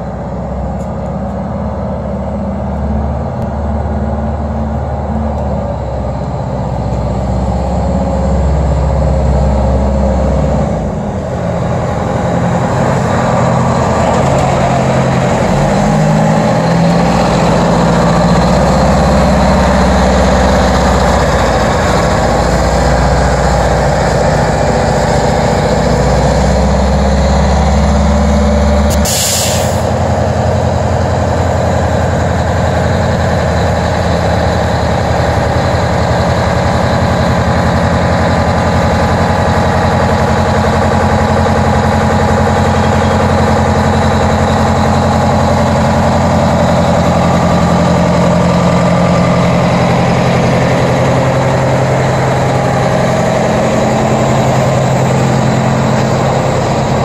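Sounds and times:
diesel truck engine running: 0.0 - 57.0
air brakes hissing: 28.9 - 30.0.

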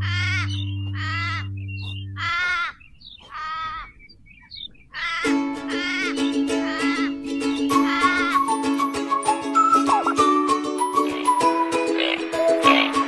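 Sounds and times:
plucked-string tune: 0.0 - 2.2, 5.2 - 13.0
pitched animal calls: 0.0 - 8.6, 10.9 - 13.0.

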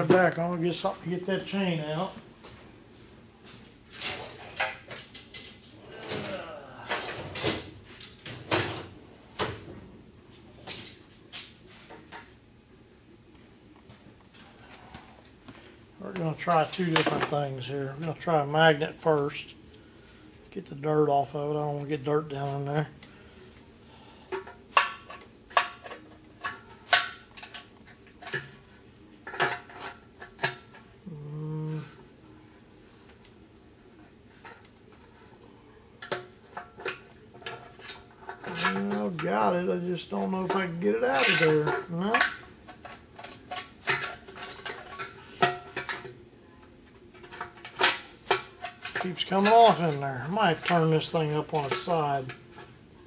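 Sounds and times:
knocks and clunks of rummaging: 3.5 - 9.9, 36.0 - 46.2.

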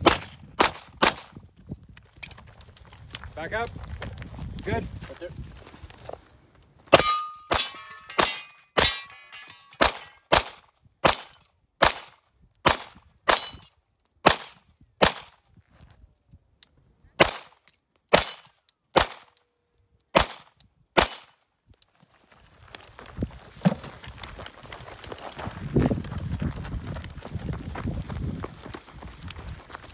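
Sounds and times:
gunshots: 0.0 - 1.3, 9.8 - 12.1, 14.2 - 15.3, 19.0 - 19.3, 20.2 - 21.3
metallic ring of struck steel: 7.0 - 9.8.

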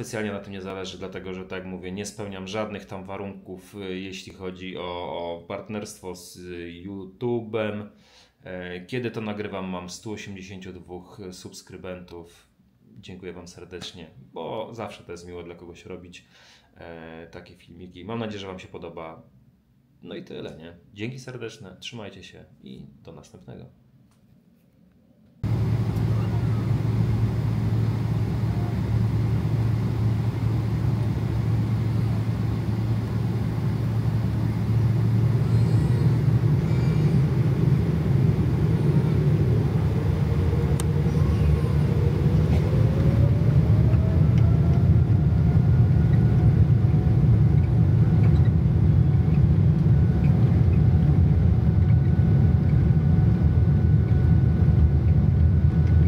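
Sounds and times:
low vehicle rumble: 25.4 - 52.8
rising whine: 25.4 - 56.0.

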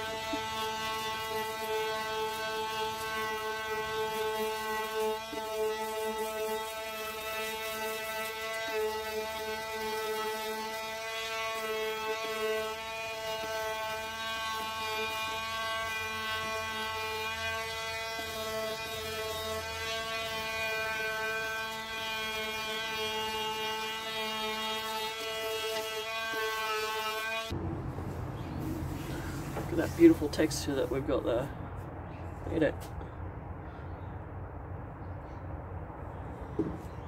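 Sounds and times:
electric sander buzzing: 0.0 - 27.6.

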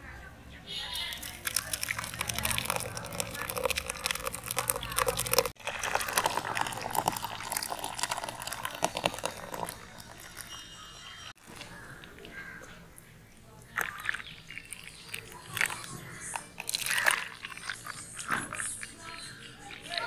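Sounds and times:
wet pulp crackling through strainer: 1.0 - 10.6, 13.6 - 20.0
juice pouring into bowl: 1.1 - 11.9, 13.6 - 20.0.

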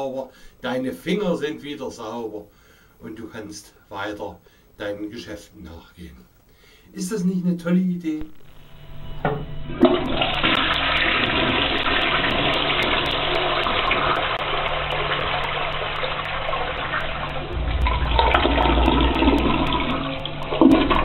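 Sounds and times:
toilet flushing: 9.2 - 21.0.

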